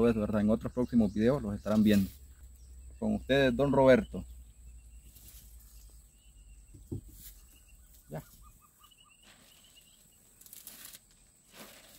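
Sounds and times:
birds calling: 0:00.0 - 0:10.7
dull knock: 0:06.7 - 0:07.2
plastic bag rustling: 0:10.4 - 0:11.9.

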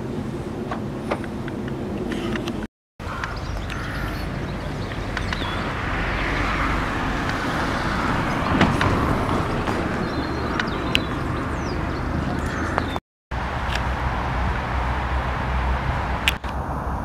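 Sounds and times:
car passing: 0:00.0 - 0:17.0
low outdoor rumble: 0:00.0 - 0:17.0.

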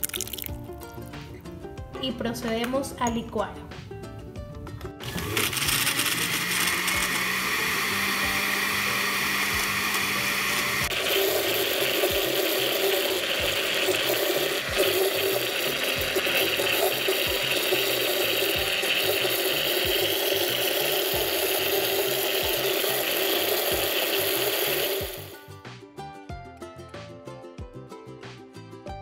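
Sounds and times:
blender motor running: 0:05.0 - 0:25.4.

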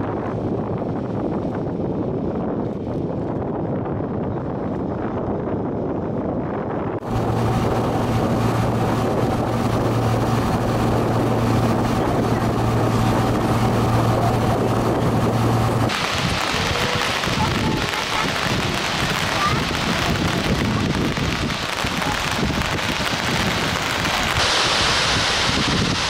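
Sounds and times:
wind rush: 0:00.0 - 0:26.0
boat engine humming: 0:07.0 - 0:25.5
hissing rush of dam water: 0:07.0 - 0:26.0
water rushing past hull: 0:07.0 - 0:26.0.

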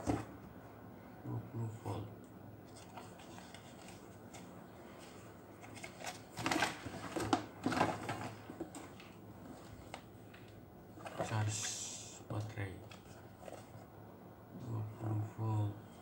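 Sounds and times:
cardboard rustling and scraping: 0:02.7 - 0:10.0, 0:10.9 - 0:11.8, 0:12.9 - 0:13.9.

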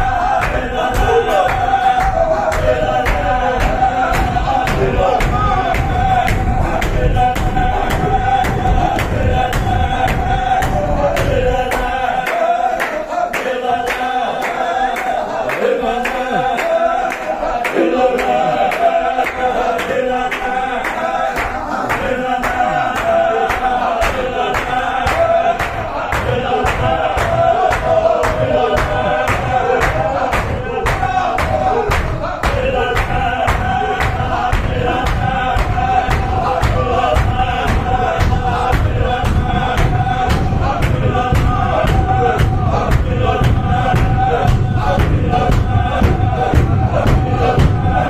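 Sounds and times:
men chanting in unison: 0:00.0 - 0:48.0
sharp rhythmic beat: 0:00.0 - 0:48.0
heavy low thudding: 0:31.5 - 0:48.0.

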